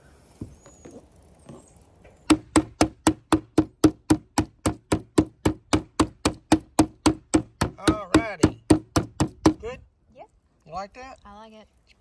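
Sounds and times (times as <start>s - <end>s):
meat mallet pounding meat: 2.3s - 9.6s.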